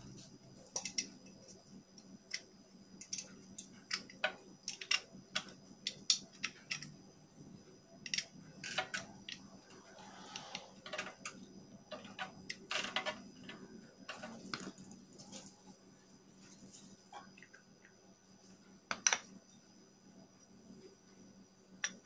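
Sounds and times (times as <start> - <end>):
metal parts clicking and tapping: 0.7 - 1.6, 2.3 - 7.0, 8.0 - 9.4, 10.4 - 14.7.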